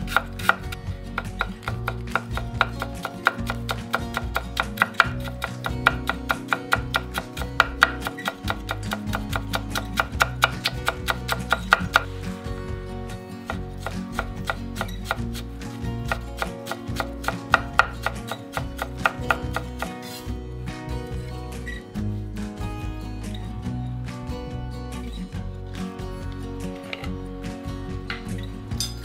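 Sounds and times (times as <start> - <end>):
knife chopping on wooden board: 0.0 - 12.1, 13.4 - 20.2.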